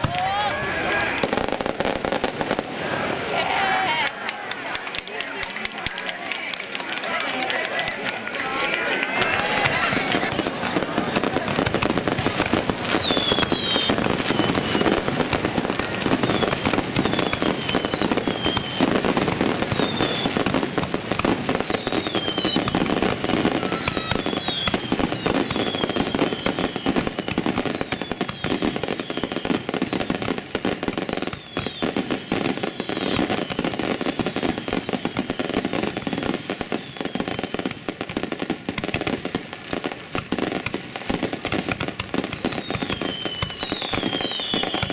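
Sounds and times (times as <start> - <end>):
fireworks crackling and popping: 0.0 - 44.9
falling whistles: 11.6 - 37.6, 41.4 - 44.9.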